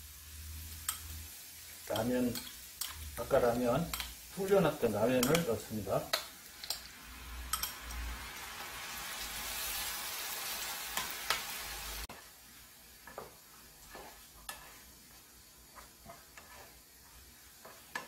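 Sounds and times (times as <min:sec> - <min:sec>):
noodles sizzling in frying pan: 0:00.0 - 0:18.0
utensil tapping against pan: 0:05.2 - 0:05.5
spatula scraping pan: 0:10.9 - 0:18.0.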